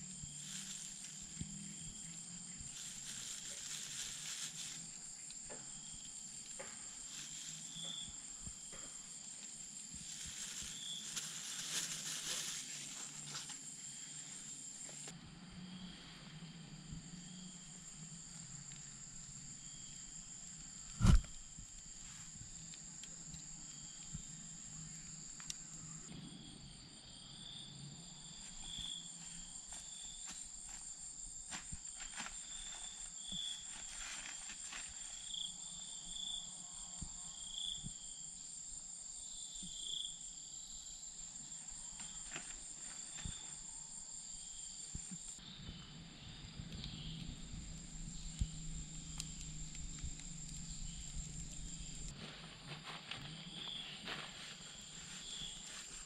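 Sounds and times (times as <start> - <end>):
insects buzzing: 0.0 - 56.0
campfire crackling: 46.7 - 52.3.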